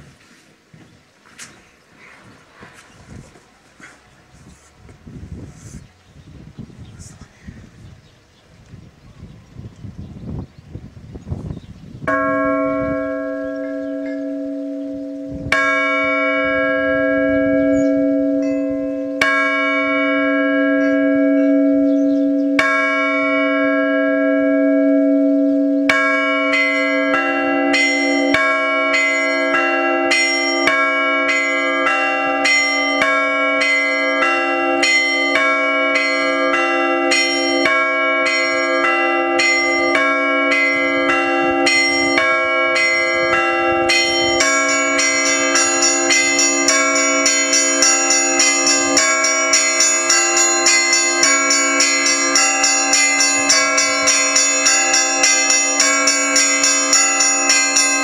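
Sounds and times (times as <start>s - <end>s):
peal of small bells: 12.0s - 58.0s
church bell strokes: 12.1s - 58.0s
low bell humming: 12.1s - 58.0s.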